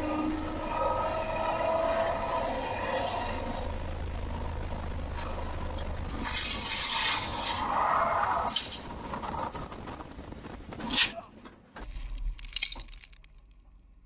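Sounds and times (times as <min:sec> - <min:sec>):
low drone: 0:00.0 - 0:08.8.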